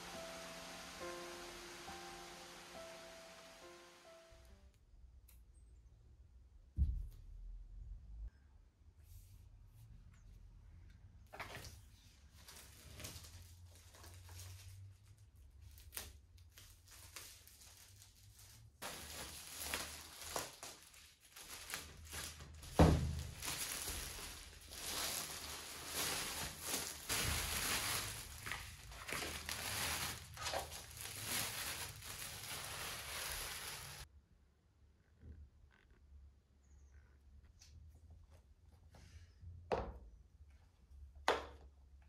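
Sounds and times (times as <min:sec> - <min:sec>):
plastic wrap crinkling: 0:12.3 - 0:34.1.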